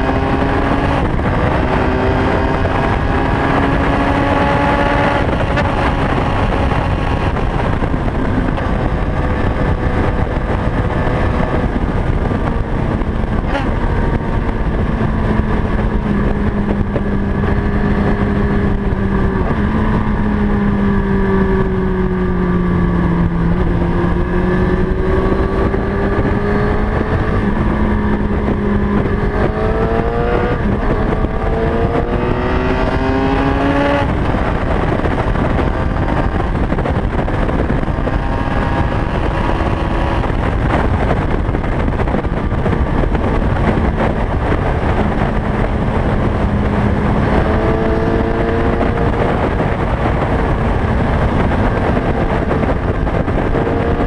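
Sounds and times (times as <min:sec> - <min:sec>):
motorcycle engine accelerating: 0:00.0 - 0:54.0
wind noise: 0:00.0 - 0:54.0.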